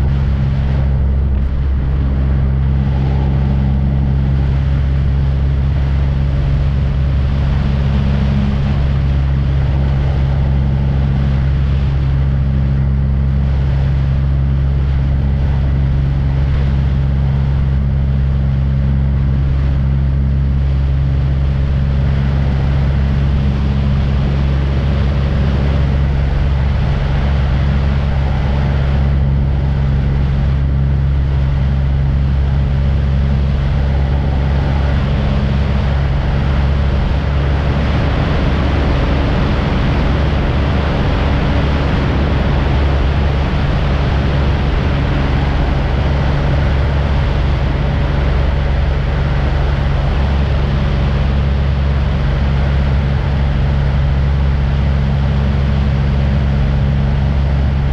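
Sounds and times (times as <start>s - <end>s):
aircraft engine drone: 0.0s - 57.9s.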